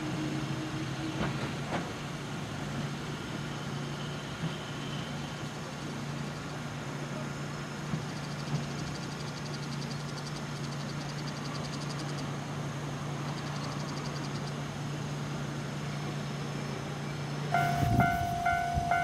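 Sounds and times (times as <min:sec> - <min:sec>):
electric train humming: 0:15.5 - 0:19.0.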